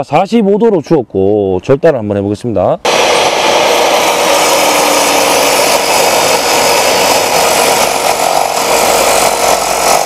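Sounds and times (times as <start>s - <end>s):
miter saw cutting wood: 2.9s - 10.0s.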